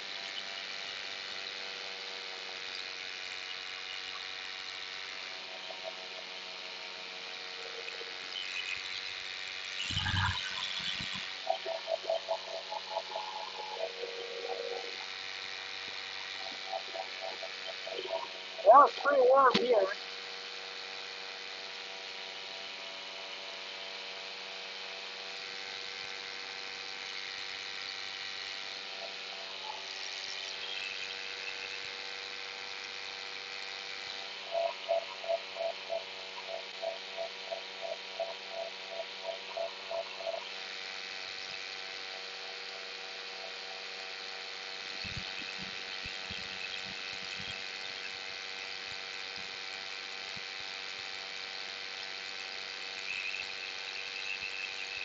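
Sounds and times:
paramotor engine droning: 0.1 - 19.9.

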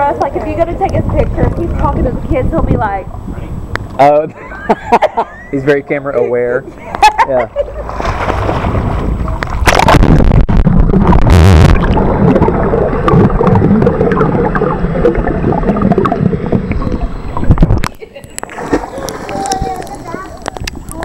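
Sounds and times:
underwater rumbling and gurgling: 0.0 - 4.0, 7.9 - 21.0
splash-like knocks: 7.9 - 16.4.

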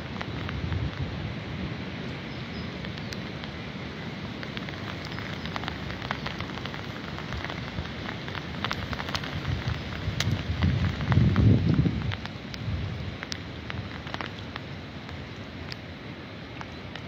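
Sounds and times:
wind buffeting microphone: 0.0 - 2.0, 2.8 - 14.3
wind through trees: 0.0 - 17.0
sharp ticks: 2.5 - 3.6, 4.2 - 15.8.

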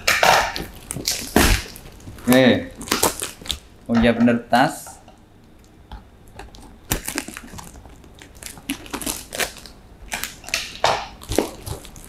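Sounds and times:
packing tape crackling: 0.0 - 3.7, 6.3 - 12.0.

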